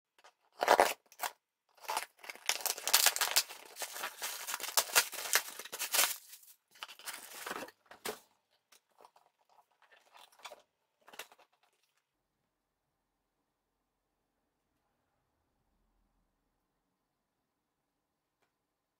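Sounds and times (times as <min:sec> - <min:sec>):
cardboard tearing and rustling: 0:00.5 - 0:08.2
scissors cutting packing tape: 0:00.6 - 0:06.3
faint handling sounds: 0:01.8 - 0:12.1.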